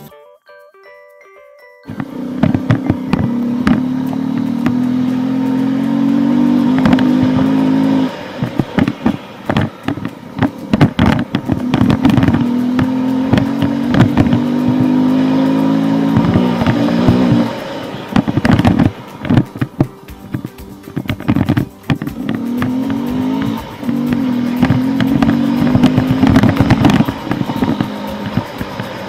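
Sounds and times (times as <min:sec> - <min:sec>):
knocks and clatter: 0:01.9 - 0:29.0
motorcycle engine revving: 0:01.9 - 0:29.0.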